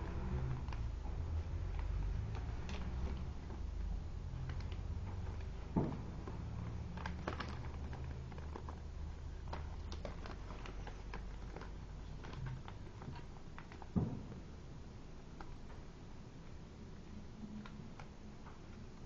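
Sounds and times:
paper crinkling and creasing: 0.0 - 14.0
steady low hum: 0.0 - 19.0.

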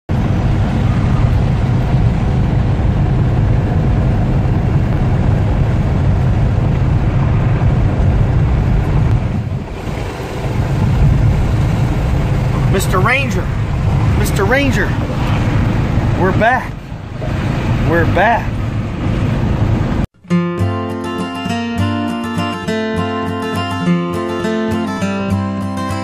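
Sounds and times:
vehicle interior highway drone: 0.1 - 20.1.

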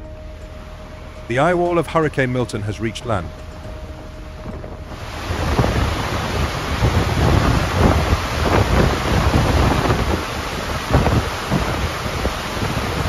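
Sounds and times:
floodwater rushing and churning: 0.0 - 13.0
wind buffeting microphone: 0.0 - 13.0.

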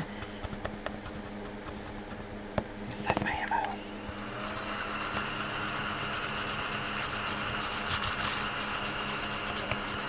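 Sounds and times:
scratcher scraping card: 6.1 - 10.0.

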